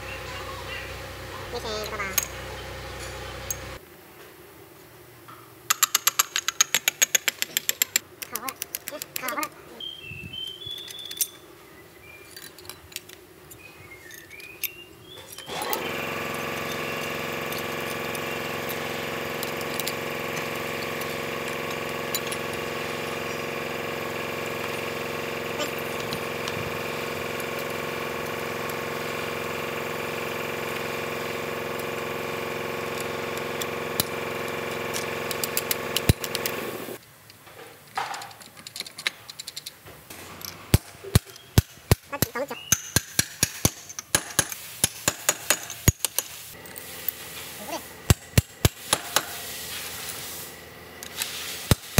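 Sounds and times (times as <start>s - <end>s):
motor running steadily: 0.0s - 3.8s, 15.5s - 37.0s, 45.1s - 51.9s
metal parts clicking: 5.7s - 9.6s, 10.6s - 11.4s, 12.2s - 22.8s, 33.0s - 46.9s.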